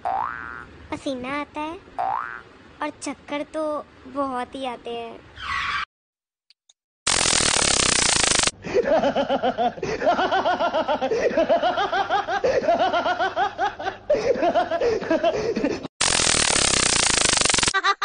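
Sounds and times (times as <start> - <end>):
person laughing: 8.6 - 15.9, 17.8 - 18.0.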